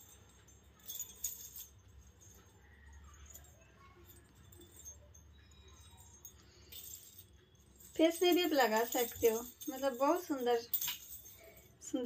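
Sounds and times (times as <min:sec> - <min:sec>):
metal coins clinking: 0:00.0 - 0:12.0.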